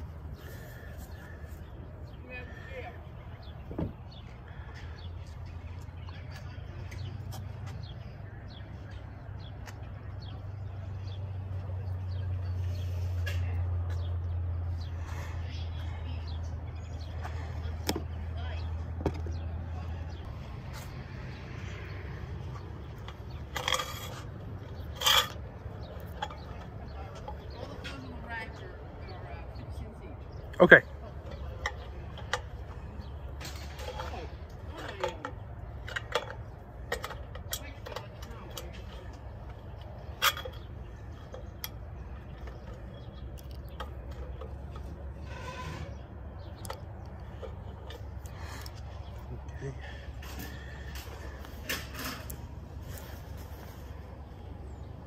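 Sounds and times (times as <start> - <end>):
wire hangers clicking and scraping: 21.6 - 28.2, 31.1 - 54.5
wire hangers scraping on metal rail: 22.5 - 28.0, 43.7 - 48.8.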